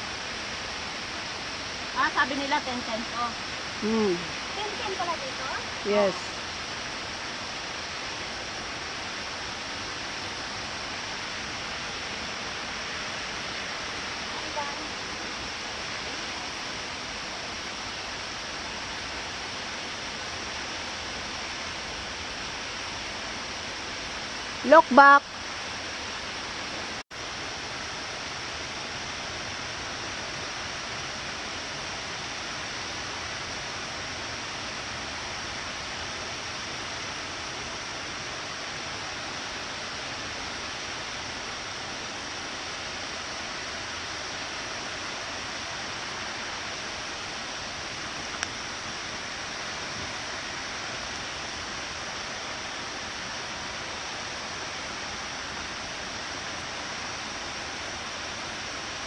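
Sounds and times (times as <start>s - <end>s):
steady rushing hiss: 0.0s - 59.0s
faint tick: 48.3s - 48.6s.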